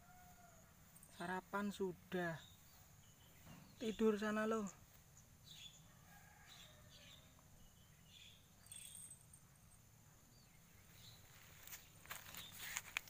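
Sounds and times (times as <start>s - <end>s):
soft bird-like chirps: 6.7s - 9.4s.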